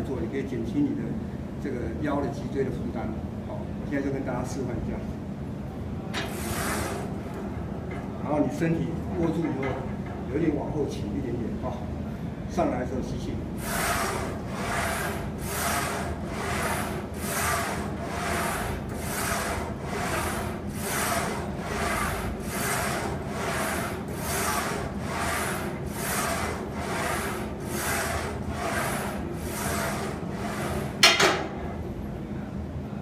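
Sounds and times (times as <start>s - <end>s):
bar carriage sliding on rails: 6.2s - 7.2s, 13.6s - 31.4s.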